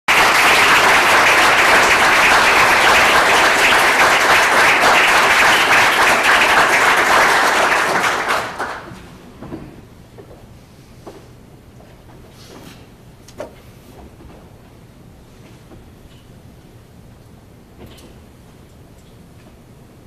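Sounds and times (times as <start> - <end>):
audience applauding: 0.1 - 9.0.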